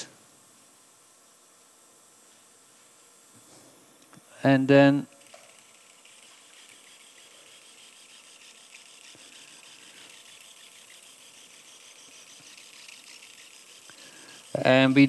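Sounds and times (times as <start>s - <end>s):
hiss of fluid through suction shaver: 5.2s - 15.0s.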